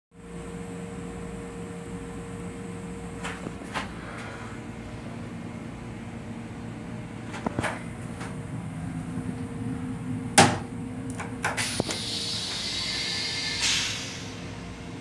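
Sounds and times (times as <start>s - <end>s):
railcar hum: 0.2s - 15.0s
toilet flush hissing: 11.5s - 15.0s.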